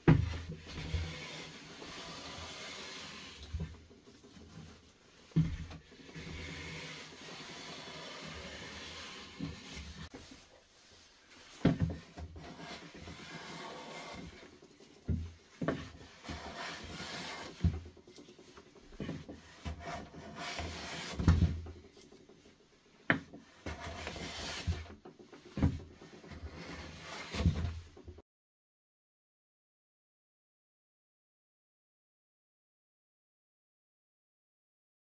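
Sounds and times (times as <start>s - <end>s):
hand plane shaving wood: 0.6s - 3.7s, 5.9s - 10.3s, 12.0s - 14.6s, 15.6s - 18.0s, 18.8s - 22.2s, 23.2s - 27.7s.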